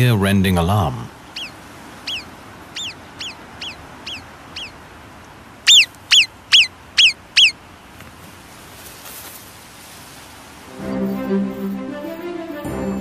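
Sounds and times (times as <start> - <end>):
marmot whistling alarm calls: 1.3 - 4.8, 5.6 - 7.6.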